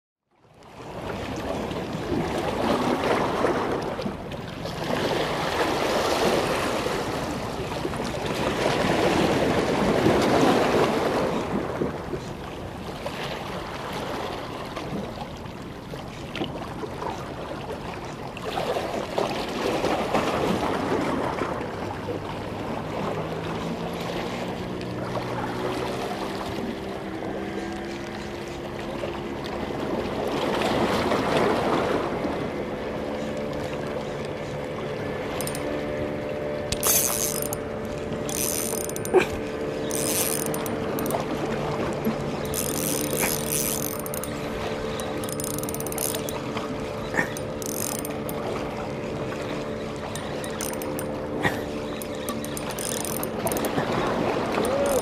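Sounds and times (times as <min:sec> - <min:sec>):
low motor hum: 0:21.5 - 0:55.0.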